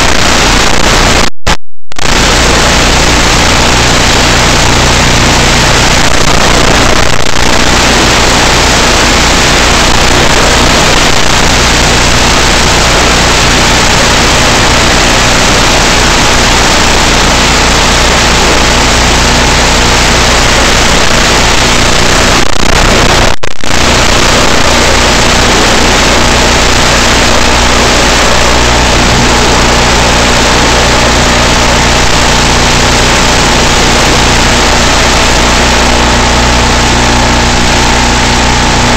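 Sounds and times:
rushing wind noise: 1.9 - 38.9
low motor hum: 22.8 - 38.9.

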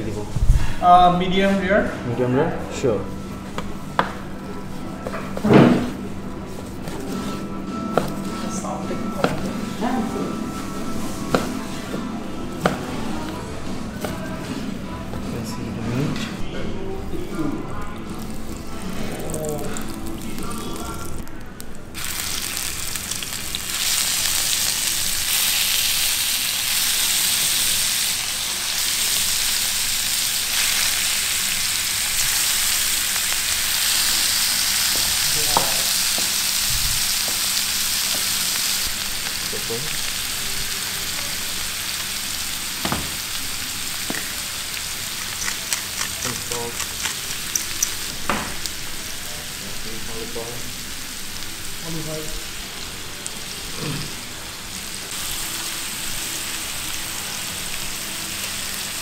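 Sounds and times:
steak sizzling on grill pan: 22.0 - 59.0
utensils knocking on pan: 42.8 - 43.2, 47.0 - 48.7.

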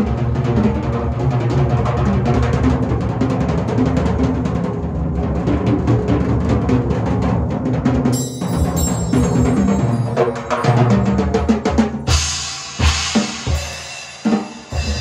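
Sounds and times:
fast drumming on low toms: 0.0 - 15.0
cymbal crash: 8.2 - 15.0.

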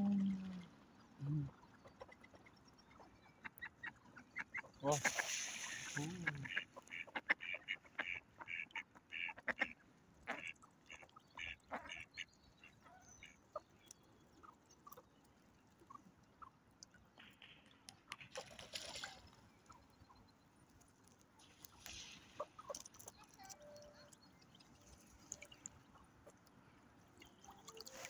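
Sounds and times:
ducks quacking: 3.4 - 13.7.

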